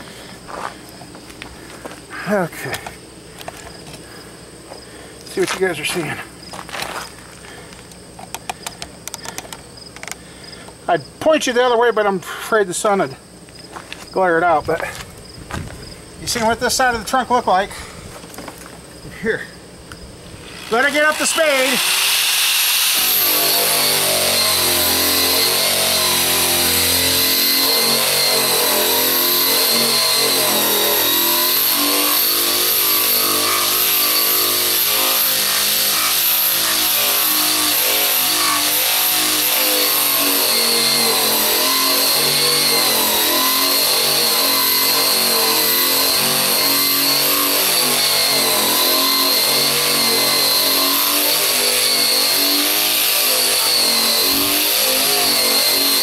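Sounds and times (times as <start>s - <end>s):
power tool grinding paint off metal: 20.3s - 56.0s.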